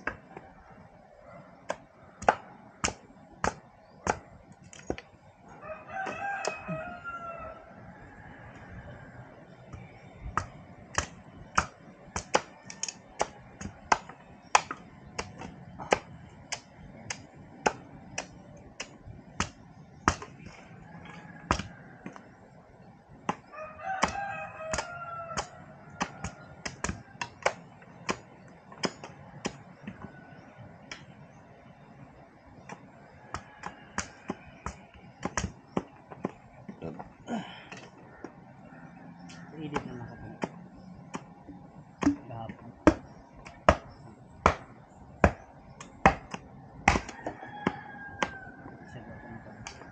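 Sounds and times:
rooster crowing: 0:05.4 - 0:10.2, 0:20.4 - 0:22.4, 0:23.3 - 0:27.4, 0:32.9 - 0:35.3, 0:37.3 - 0:40.6, 0:46.9 - 0:49.9
machete chopping bamboo: 0:10.3 - 0:20.5, 0:23.2 - 0:29.6, 0:42.0 - 0:47.4.

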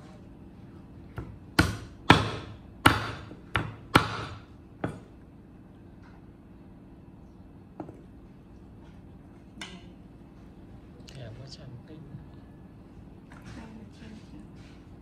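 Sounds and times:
cleaver chopping meat on wood: 0:01.2 - 0:05.1.

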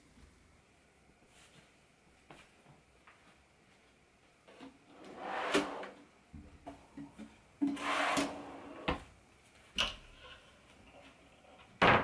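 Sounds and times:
wooden drawers sliding on runners: 0:04.9 - 0:06.0, 0:07.6 - 0:09.0.

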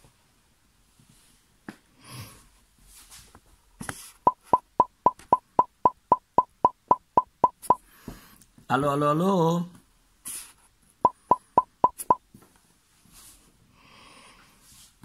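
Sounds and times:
soft rustles: 0:02.6 - 0:04.2, 0:12.3 - 0:13.6.

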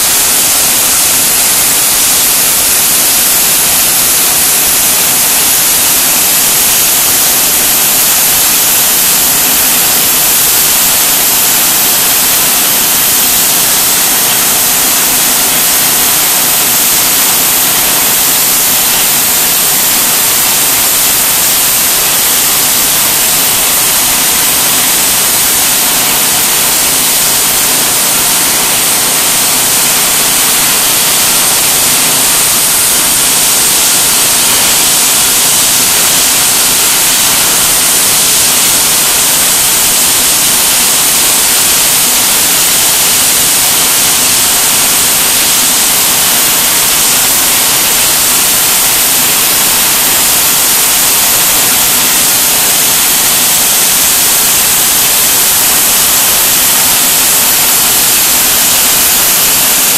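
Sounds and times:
plasma cutter hissing: 0:00.0 - 0:59.9.

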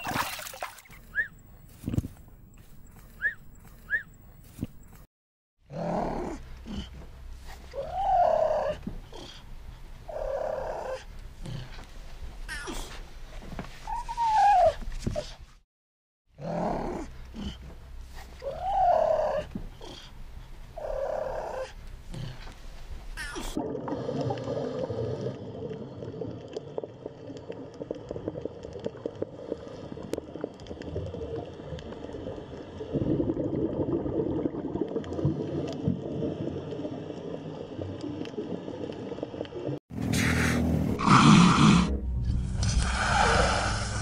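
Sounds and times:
lion cub calling: 0:18.4 - 0:19.5
low drone with crackles: 0:23.9 - 0:39.8.

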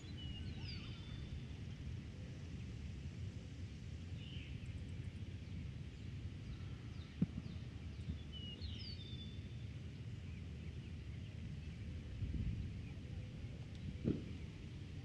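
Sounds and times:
wind rumble: 0:11.6 - 0:15.0.

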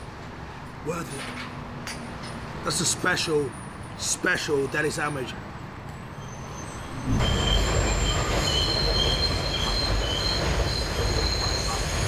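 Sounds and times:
elevated train rumbling: 0:06.0 - 0:12.0
steel wheels squealing: 0:06.0 - 0:12.0.

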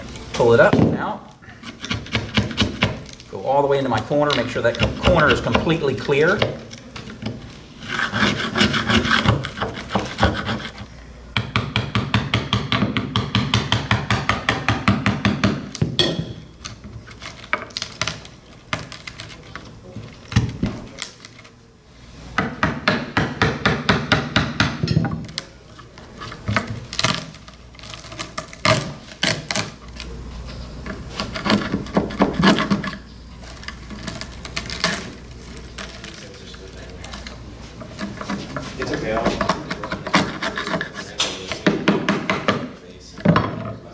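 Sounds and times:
screwdriver scraping wood: 0:01.6 - 0:03.1, 0:03.9 - 0:10.9, 0:30.8 - 0:36.3, 0:37.0 - 0:41.6.

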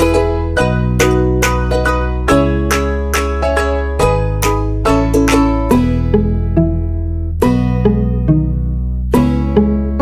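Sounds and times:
held bass notes: 0:00.0 - 0:10.0
plucked string instrument tune: 0:00.0 - 0:10.0.

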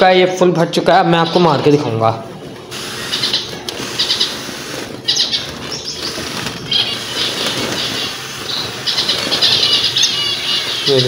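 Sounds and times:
finches chirping: 0:01.0 - 0:11.0
wings fluttering: 0:02.4 - 0:11.0
sprayer misting hiss: 0:02.7 - 0:11.0.

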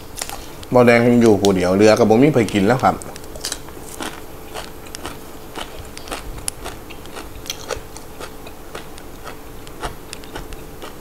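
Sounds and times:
chewing crunchy raw vegetables: 0:02.4 - 0:11.0.

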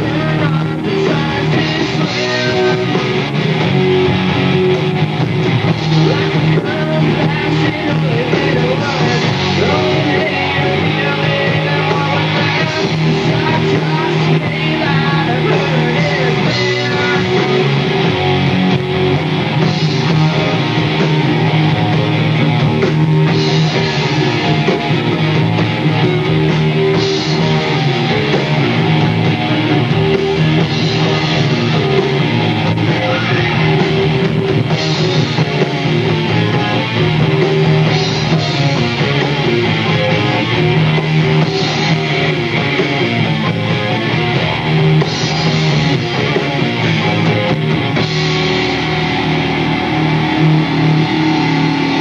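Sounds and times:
person singing: 0:00.0 - 0:03.4, 0:05.9 - 0:18.0
bass guitar: 0:00.0 - 0:52.0
drums: 0:00.0 - 0:52.0
electric guitars: 0:00.0 - 0:52.0.

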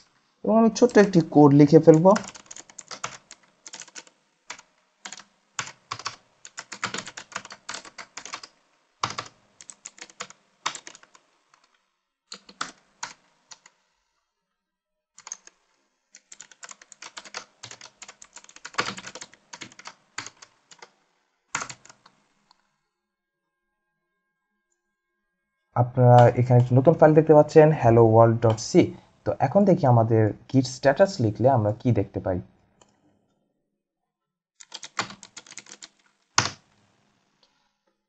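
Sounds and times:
typing on computer keyboard: 0:00.8 - 0:11.7, 0:12.3 - 0:13.7, 0:15.2 - 0:15.6, 0:16.2 - 0:20.9, 0:21.6 - 0:22.2, 0:34.6 - 0:36.7.

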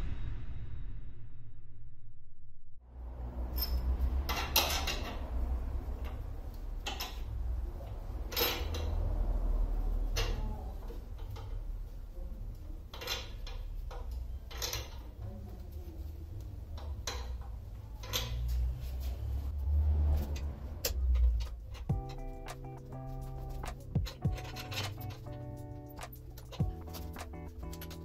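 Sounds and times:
steady low rumble: 0:00.0 - 0:04.4, 0:18.8 - 0:28.0
metallic clinks and knocks: 0:03.5 - 0:05.4, 0:08.3 - 0:09.1, 0:12.9 - 0:15.2, 0:16.8 - 0:18.7, 0:20.8 - 0:28.0.

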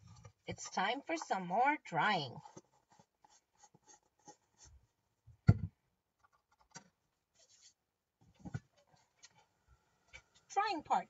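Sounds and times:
items knocking on table: 0:05.4 - 0:05.8.

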